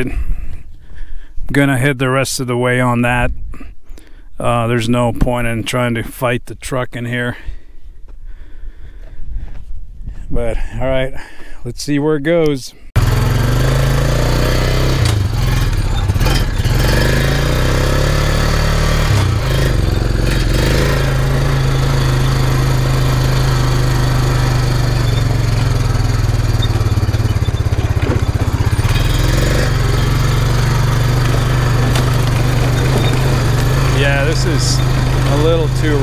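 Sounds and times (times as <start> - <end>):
quad engine running: 13.0 - 36.0.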